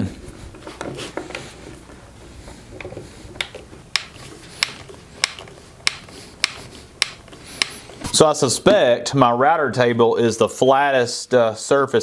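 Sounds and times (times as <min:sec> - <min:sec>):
screwdriver clicking: 0:03.4 - 0:07.8.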